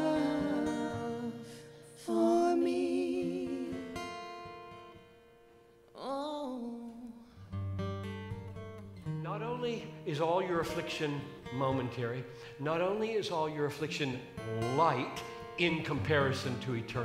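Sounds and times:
women singing: 0.0 - 1.4, 2.0 - 4.0
strummed acoustic guitar: 0.0 - 5.8, 7.2 - 17.0.

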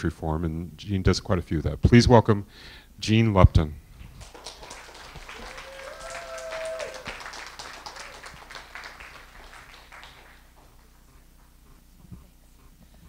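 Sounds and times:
audience applauding: 4.1 - 11.1
person cheering: 4.6 - 10.1.

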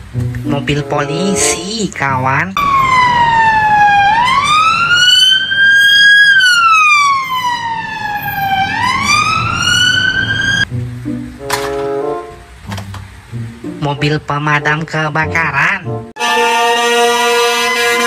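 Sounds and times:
police siren wailing: 2.6 - 10.7, 16.2 - 18.0.

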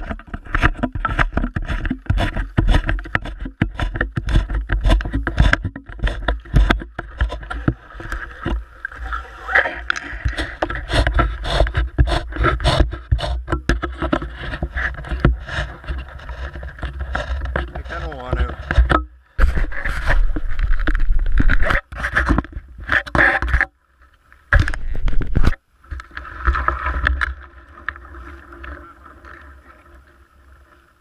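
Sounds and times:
jacket rubbing against camera: 10.1 - 13.5, 19.4 - 23.4.

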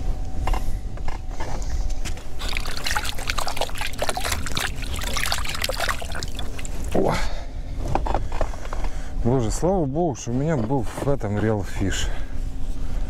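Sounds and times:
water trickling and dripping: 2.2 - 7.1.

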